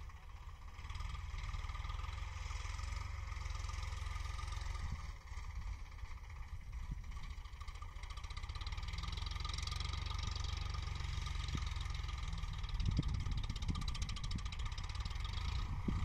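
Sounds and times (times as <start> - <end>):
tractor diesel engine chugging: 0.0 - 16.0
wind buffeting microphone: 12.6 - 16.0.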